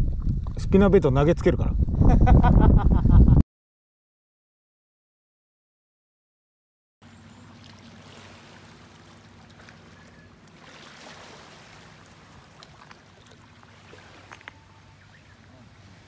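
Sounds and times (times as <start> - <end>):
steady low hum: 7.0 - 16.0
small waves lapping on stones: 7.1 - 14.6.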